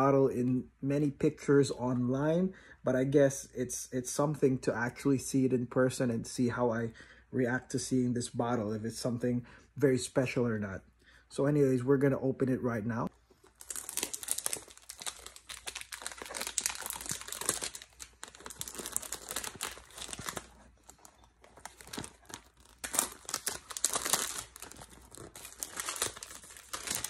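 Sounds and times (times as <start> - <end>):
cellophane crinkling and tearing: 13.3 - 27.0.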